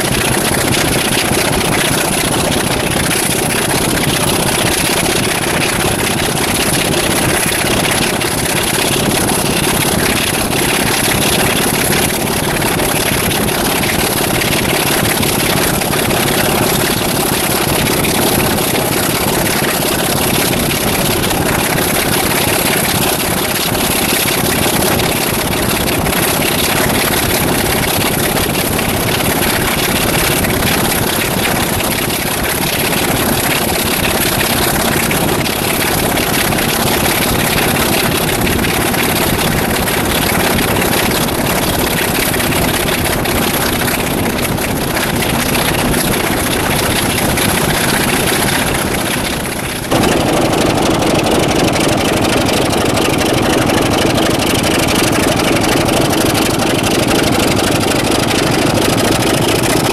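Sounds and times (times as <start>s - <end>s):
diesel locomotive engine: 33.3s - 59.9s.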